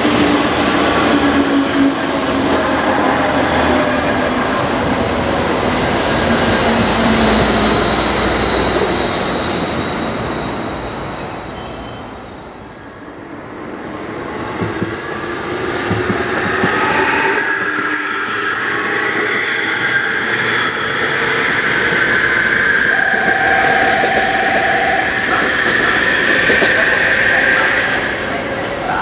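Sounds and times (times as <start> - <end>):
train rail noise: 0.0 - 29.0
train wheels squealing: 6.0 - 13.5, 16.4 - 28.4.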